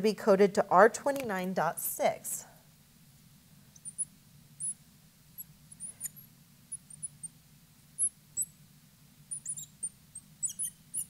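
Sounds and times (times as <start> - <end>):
marker squeaking on glass: 3.8 - 4.8, 5.4 - 7.3, 9.3 - 11.0.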